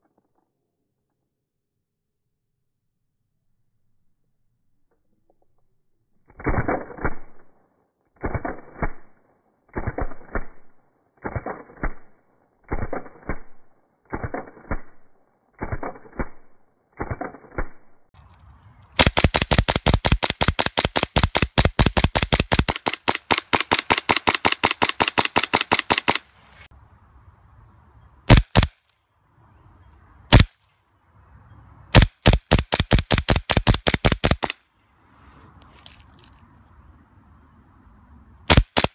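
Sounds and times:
airsoft pistol shots: 28.3 - 28.8, 30.3 - 30.5, 31.9 - 34.6, 38.5 - 38.9.

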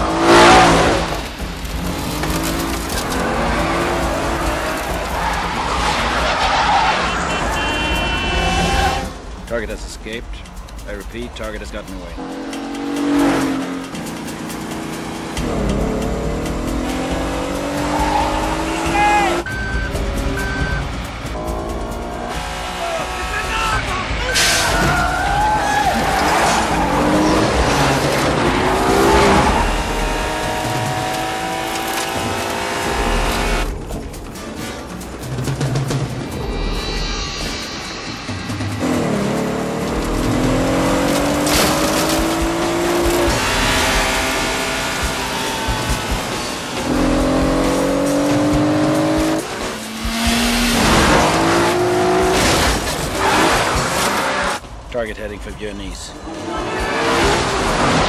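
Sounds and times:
car engines revving hard: 0.0 - 58.0
gravel spraying: 0.6 - 7.3
tyres scrabbling on gravel: 1.1 - 7.3.

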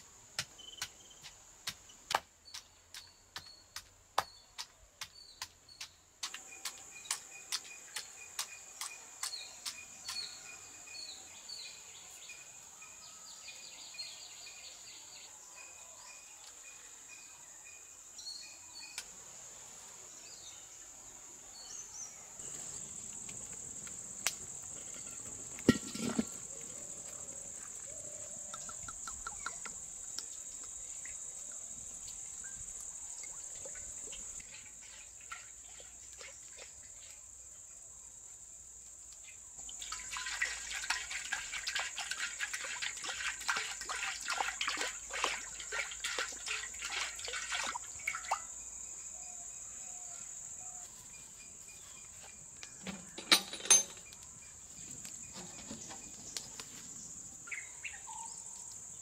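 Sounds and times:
crickets chirping: 0.0 - 2.1, 6.3 - 59.0
oil crackling in a wok: 39.7 - 47.7.

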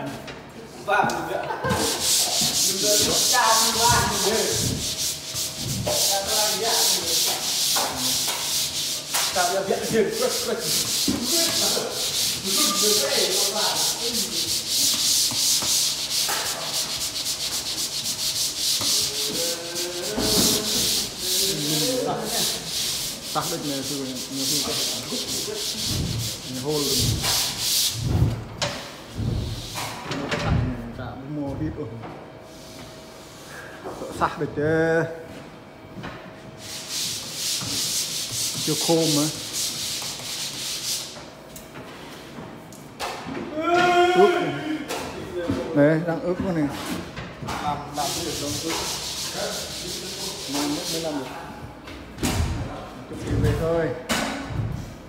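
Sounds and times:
drywall tool scraping: 1.6 - 28.4, 36.6 - 41.2, 46.6 - 51.4.

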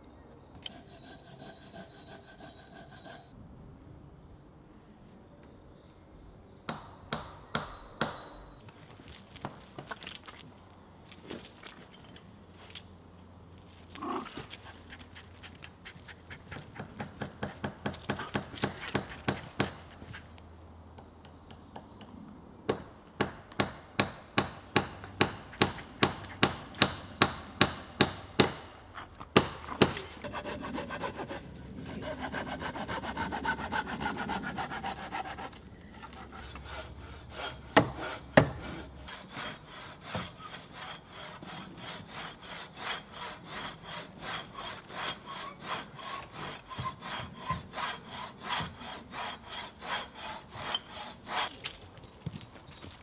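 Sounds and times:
hand saw cutting log: 0.6 - 3.3, 14.0 - 20.4, 22.7 - 52.0
sharp wooden knocks: 22.7 - 28.7, 29.4 - 30.4, 37.8 - 38.7.

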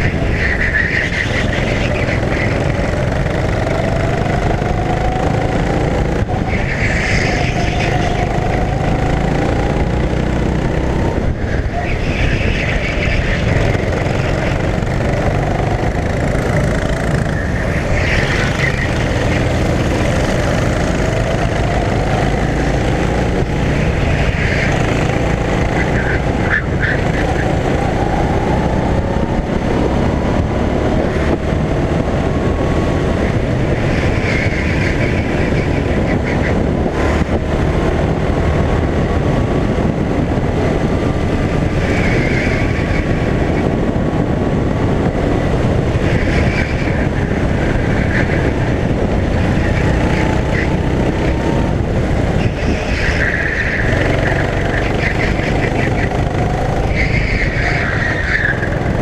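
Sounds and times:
high-pitched squeals: 0.0 - 9.6, 52.3 - 58.9
go-kart engine revving: 0.0 - 59.0.

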